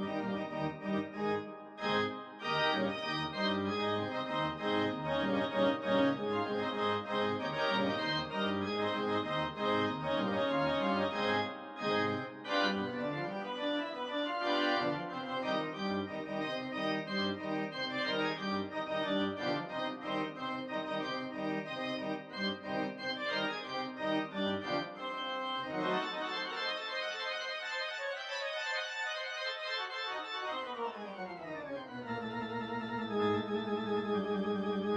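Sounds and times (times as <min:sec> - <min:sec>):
organ music: 0:00.0 - 0:34.9.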